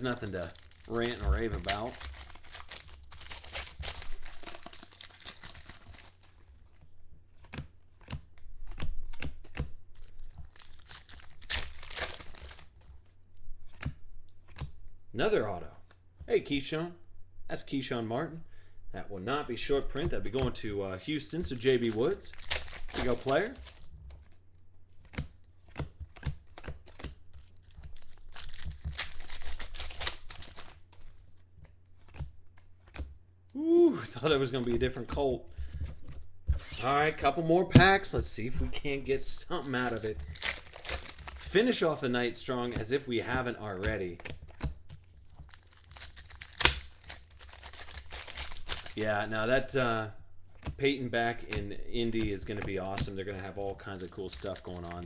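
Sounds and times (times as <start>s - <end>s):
foil wrappers tearing and crinkling: 0.0s - 6.5s, 9.9s - 12.8s, 21.3s - 24.0s, 25.7s - 31.2s, 39.1s - 41.9s, 43.9s - 49.2s, 52.1s - 55.0s
cards clicking and crinkling: 0.0s - 14.8s, 21.3s - 33.2s, 38.0s - 43.0s, 43.7s - 49.2s, 51.4s - 55.0s.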